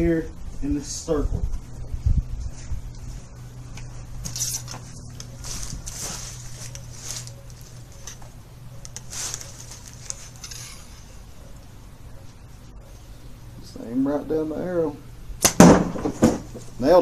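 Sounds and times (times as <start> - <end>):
steady low hum: 0.0 - 17.0
rustles and scrapes of handling: 1.4 - 11.5.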